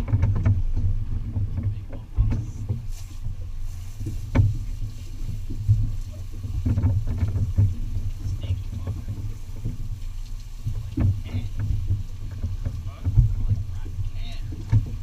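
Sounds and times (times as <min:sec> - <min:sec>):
low thump: 0:00.0 - 0:02.9, 0:04.0 - 0:04.7
boat low rumble: 0:00.0 - 0:15.0.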